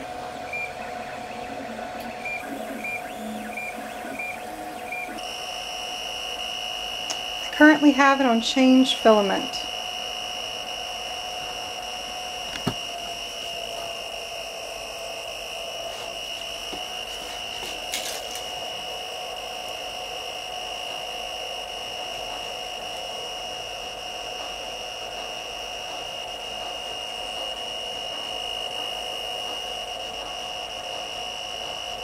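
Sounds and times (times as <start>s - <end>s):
fan hum: 0.0s - 32.0s
high electrical whine: 0.0s - 32.0s
filament crackle: 5.1s - 18.8s.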